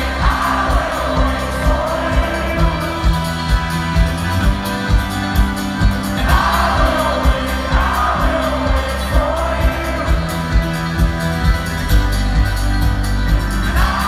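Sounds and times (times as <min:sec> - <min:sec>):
person singing: 0:00.0 - 0:03.6, 0:06.2 - 0:10.8
acoustic strings: 0:00.0 - 0:14.0
double bass: 0:00.0 - 0:14.0.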